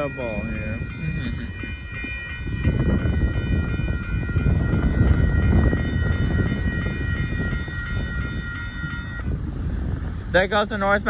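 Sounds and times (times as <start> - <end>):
dense low rumble: 0.0 - 11.0
railroad crossing bells ringing: 0.0 - 11.0.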